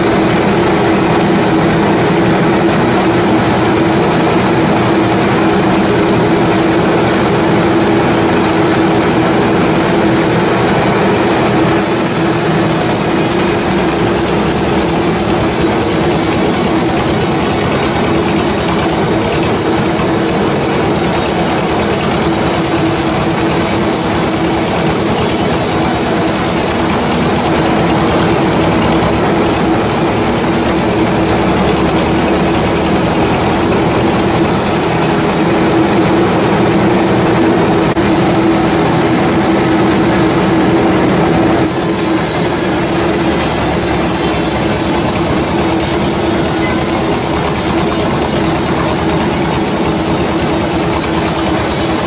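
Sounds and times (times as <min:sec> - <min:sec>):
sawmill saw cutting log: 0:11.2 - 0:35.8, 0:41.5 - 0:52.0.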